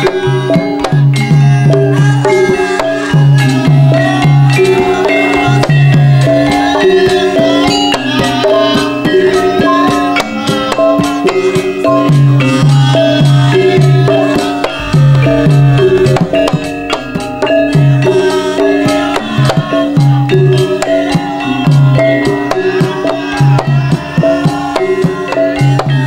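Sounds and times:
gamelan metal-keyed melody: 0.0s - 26.0s
sharp percussive hits: 0.0s - 26.0s
low hand drum strokes: 10.6s - 26.0s.

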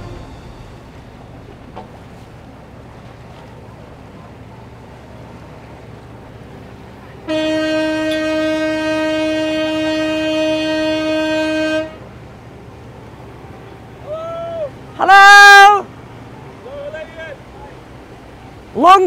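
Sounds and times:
boat horn blast: 0.0s - 2.4s, 7.0s - 12.4s
low steady rumble: 0.0s - 15.0s.

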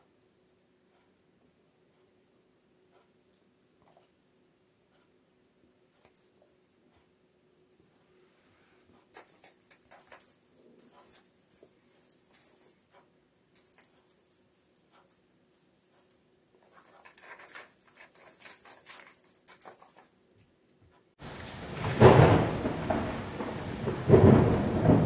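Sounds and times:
cat rustling plastic branches: 16.6s - 20.2s.

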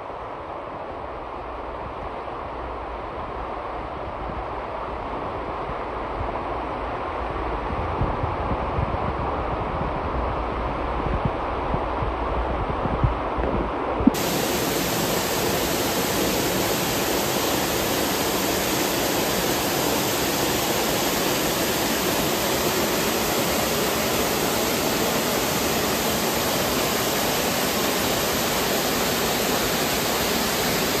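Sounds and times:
waterfall rushing: 14.1s - 31.0s.

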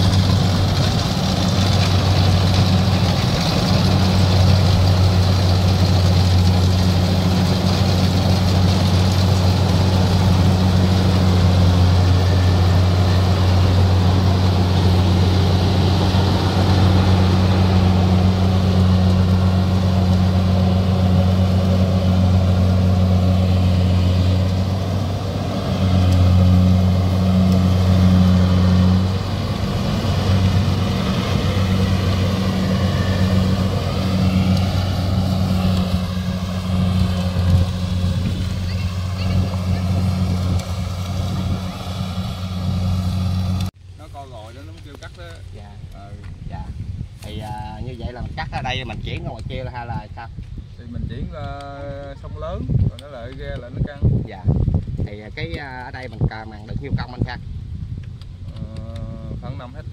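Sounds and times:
combine harvester engine hum: 0.0s - 44.0s.

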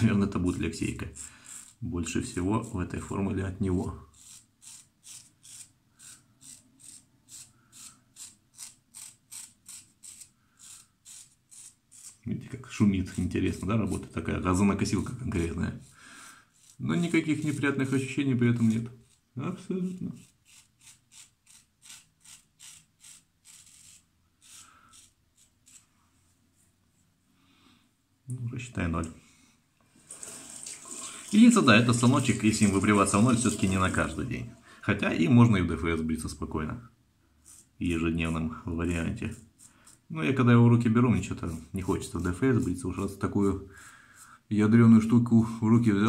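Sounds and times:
razor scraping stubble: 4.1s - 15.9s, 16.5s - 25.9s, 37.4s - 40.1s, 41.2s - 43.6s.

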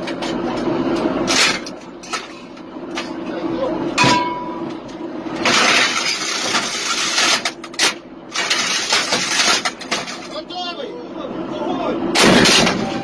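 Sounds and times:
metal clang with ringing tone: 4.0s - 4.8s.

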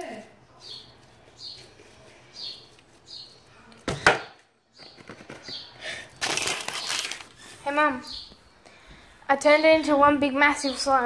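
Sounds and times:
rustling handling noise: 6.2s - 7.9s.

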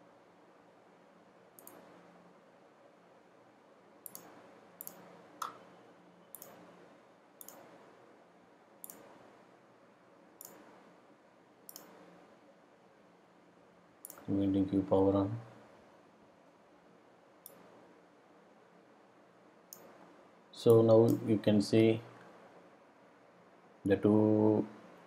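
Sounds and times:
low background hum: 0.0s - 25.0s
mouse clicks: 1.6s - 1.9s, 4.0s - 5.6s, 6.3s - 6.6s, 7.4s - 7.7s, 8.8s - 9.1s, 10.4s - 10.7s, 11.7s - 12.0s, 14.0s - 14.3s, 17.4s - 17.7s, 19.7s - 20.0s.

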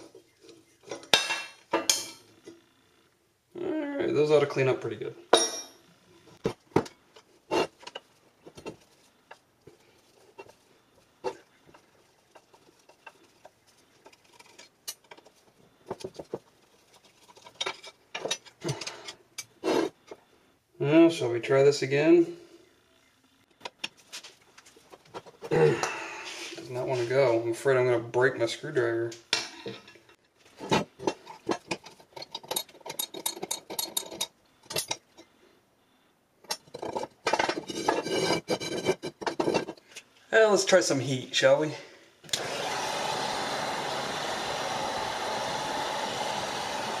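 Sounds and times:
metal clinks and knocks: 5.3s - 5.9s, 29.5s - 35.3s
hand tools handled on bench: 6.3s - 20.2s, 36.4s - 40.1s
screwdriver scraping rusted screw: 11.2s - 16.3s, 31.0s - 35.0s, 36.5s - 40.0s.

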